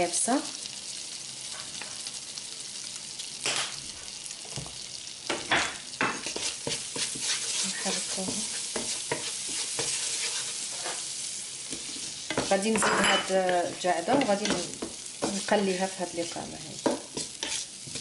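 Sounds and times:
herbs sizzling in butter: 0:00.0 - 0:18.0
wooden spoon scraping a pan: 0:05.4 - 0:18.0.

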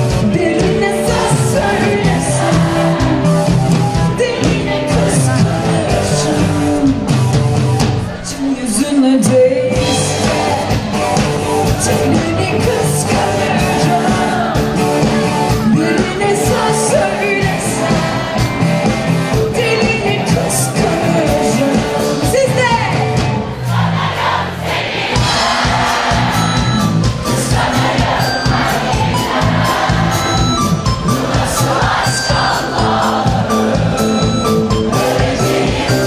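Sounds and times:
lead singer's vocals: 0:00.0 - 0:23.0
live pop-rock band playing: 0:00.0 - 0:24.1, 0:25.0 - 0:36.0
drum beats: 0:00.0 - 0:36.0.

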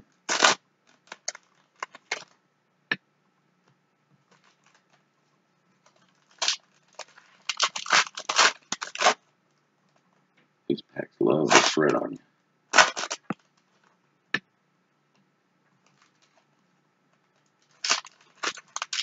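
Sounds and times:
foil wrapper tearing and crinkling: 0:00.3 - 0:02.3, 0:05.9 - 0:09.3, 0:11.5 - 0:11.9, 0:12.8 - 0:13.6, 0:17.6 - 0:19.0.

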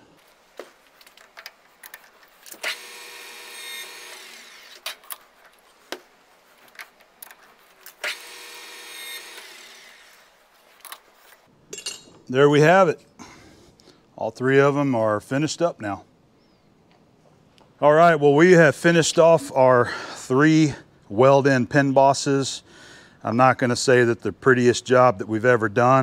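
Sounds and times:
lathe tool cutting steel: 0:08.0 - 0:10.3.

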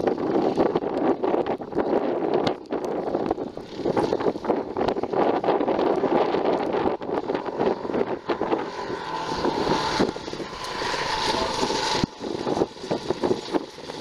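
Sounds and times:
dirt bike engine: 0:00.0 - 0:14.0
wind buffeting microphone: 0:00.0 - 0:14.0.

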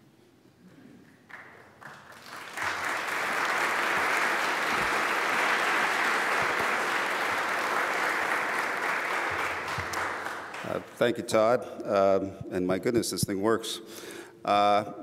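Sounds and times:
audience applauding: 0:01.3 - 0:11.0.

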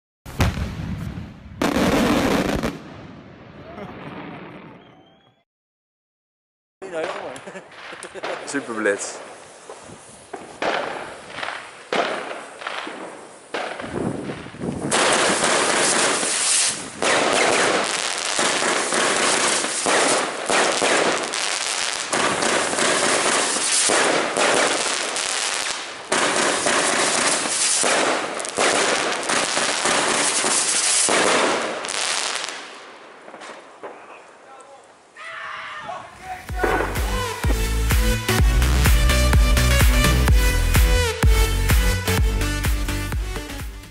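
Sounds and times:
fireworks cake firing shots: 0:06.8 - 0:32.7, 0:36.4 - 0:37.7.

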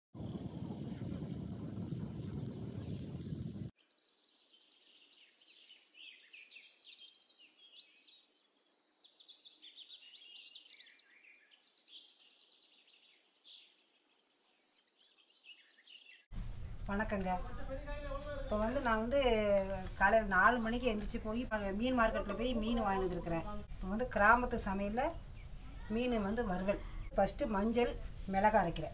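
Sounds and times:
wind rushing over microphone: 0:00.2 - 0:03.7
birds chirping and calling: 0:05.1 - 0:28.6.

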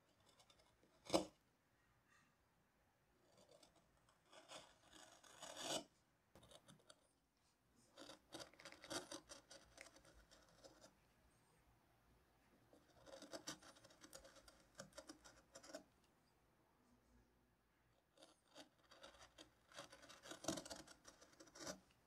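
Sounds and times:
gouge scraping wood: 0:03.3 - 0:07.0, 0:07.9 - 0:10.9, 0:12.9 - 0:15.9, 0:18.2 - 0:21.9.

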